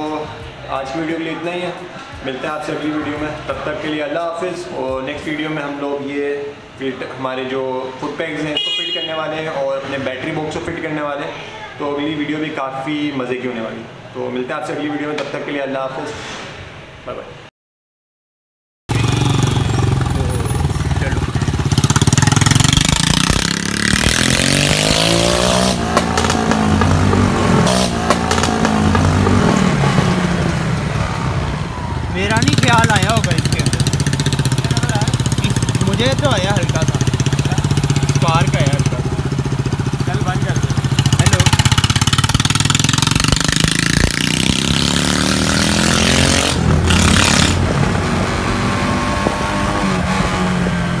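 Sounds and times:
motorcycle engine revving: 18.9 - 51.0.

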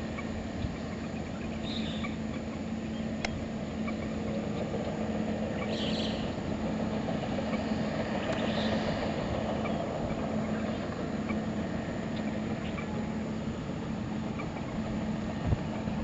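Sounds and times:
harvester and tractor engines droning: 0.0 - 16.0.

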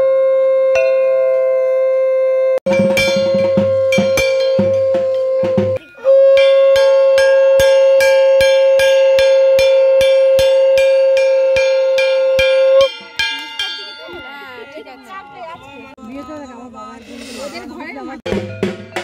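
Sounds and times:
conch shell blown: 0.0 - 12.9
gong beaten with stick: 2.7 - 14.2.

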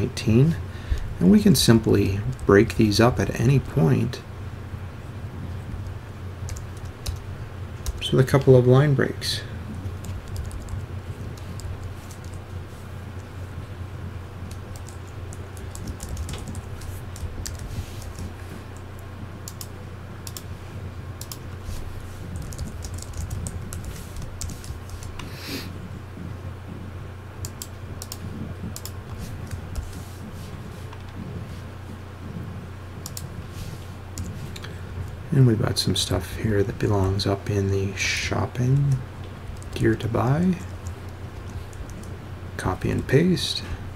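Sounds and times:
steady low hum: 0.0 - 43.9
typing on keyboard: 6.5 - 7.2, 7.8 - 8.1, 10.0 - 12.4, 14.5 - 18.3, 22.3 - 25.2, 39.6 - 39.8, 40.6 - 42.1.

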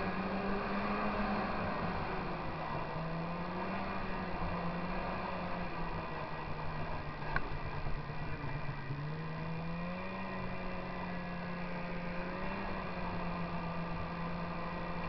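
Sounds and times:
snowmobile engine running: 0.0 - 15.0.

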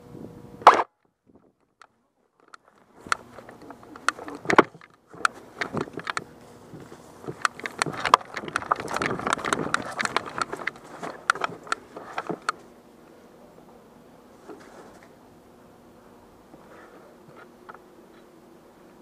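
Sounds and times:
clatter of rifle and gear: 1.7 - 12.7
rustling: 2.3 - 12.7, 14.3 - 15.2
footsteps: 2.6 - 12.7.

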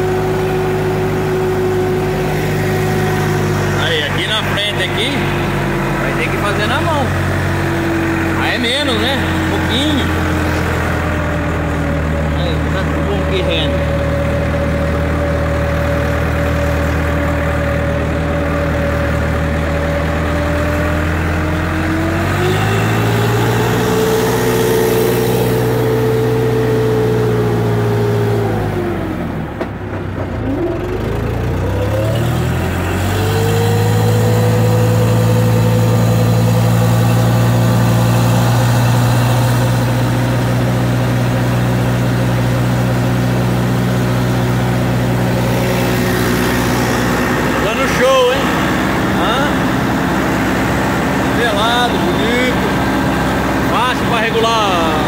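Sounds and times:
tractor engine running under load: 0.0 - 55.0.

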